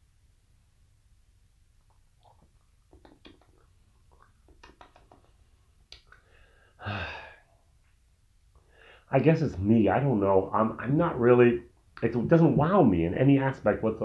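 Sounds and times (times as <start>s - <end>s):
lip smacks and tongue clicks: 1.8s - 6.3s
short breathy vocal sound: 6.1s - 7.6s.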